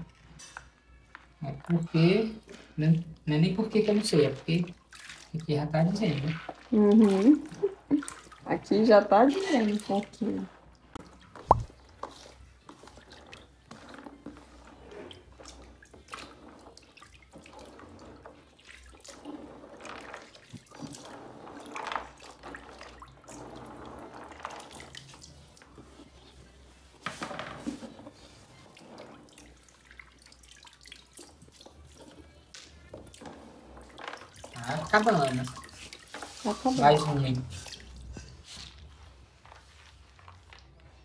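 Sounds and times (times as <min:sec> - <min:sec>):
water splashes and drips: 0:01.4 - 0:41.0
hands sloshing through water: 0:06.2 - 0:08.4, 0:11.1 - 0:14.0, 0:33.9 - 0:38.9.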